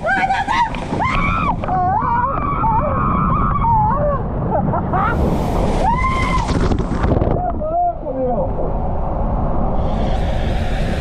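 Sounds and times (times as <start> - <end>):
rushing water: 0.0 - 7.5
water slide tube rumble: 0.7 - 7.7
riders screaming: 5.8 - 6.6.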